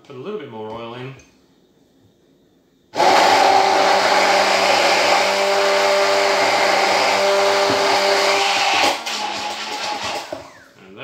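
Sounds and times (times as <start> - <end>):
stick blender whirring: 3.0 - 10.8.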